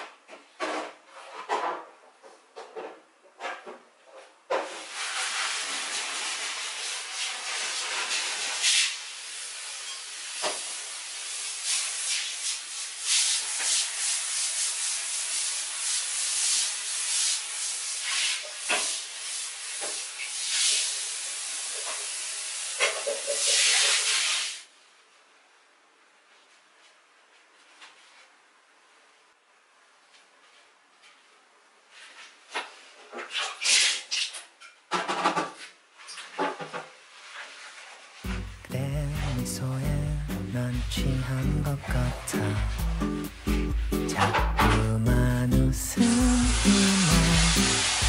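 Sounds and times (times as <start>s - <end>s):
shower water hissing on basin: 4.5s - 24.8s, 31.9s - 34.5s, 35.9s - 48.0s.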